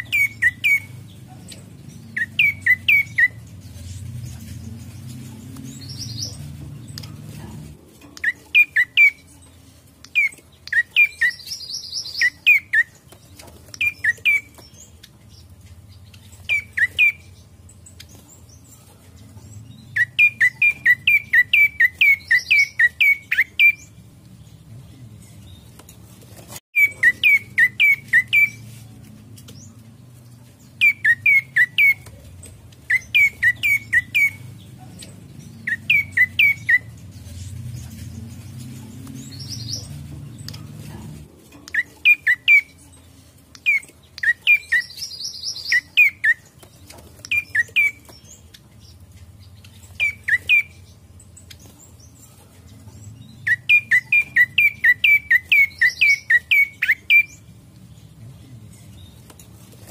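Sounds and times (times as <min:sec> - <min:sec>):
high bird trill: 0:00.0 - 0:01.2, 0:02.0 - 0:04.0, 0:08.2 - 0:13.0, 0:26.8 - 0:28.7, 0:30.7 - 0:32.1, 0:53.3 - 0:57.5
bird singing falling notes: 0:01.9 - 0:07.1, 0:41.6 - 0:57.5.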